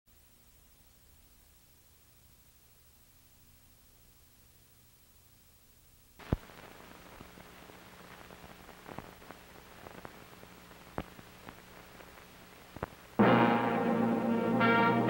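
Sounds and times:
film soundtrack hiss and hum: 0:00.1 - 0:15.0
pops and crackles: 0:06.2 - 0:13.2.

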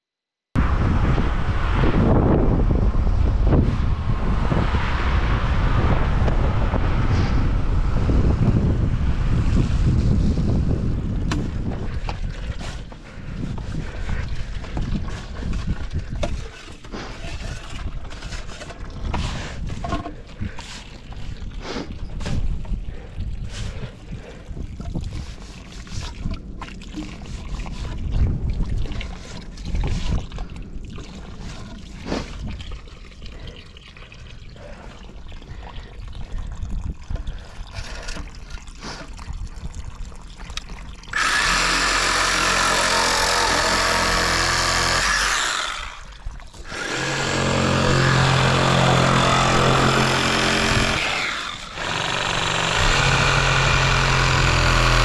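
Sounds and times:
wind buffeting microphone: 0:00.6 - 0:33.6, 0:34.2 - 0:54.6
shovel scraping muddy soil: 0:15.0 - 0:21.0, 0:31.4 - 0:32.4
reciprocating saw cutting pipe: 0:41.1 - 0:55.0.

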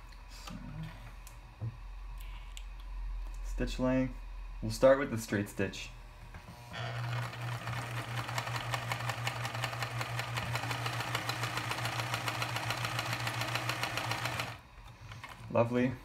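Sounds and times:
sewing machine stitching: 0:06.8 - 0:15.6.

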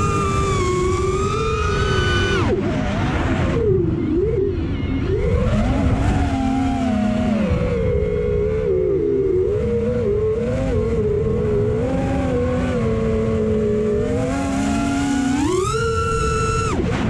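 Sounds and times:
drone motors whining: 0:00.0 - 0:17.0
wind rumble on microphone: 0:00.0 - 0:17.0.

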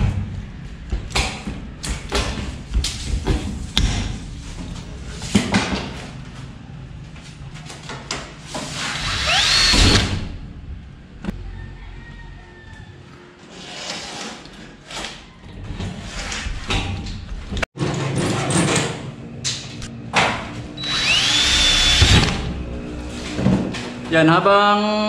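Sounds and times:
drill whine: 0:08.9 - 0:10.2, 0:20.8 - 0:22.4.

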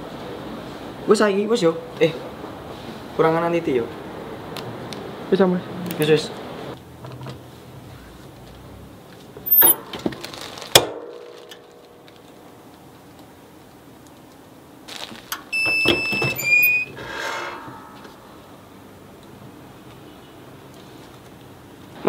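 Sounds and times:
short squeal: 0:09.5 - 0:09.8, 0:15.6 - 0:18.1
ringing metal clank: 0:16.6 - 0:18.9.

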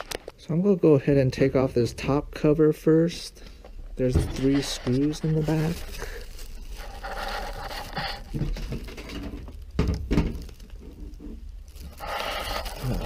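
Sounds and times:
handling knocks and rustles: 0:04.0 - 0:11.8
loud thumps: 0:08.4 - 0:11.4.

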